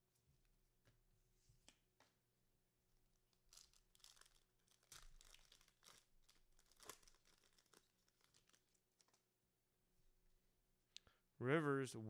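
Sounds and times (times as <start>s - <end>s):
foil wrapper tearing and crinkling: 3.3s - 9.2s.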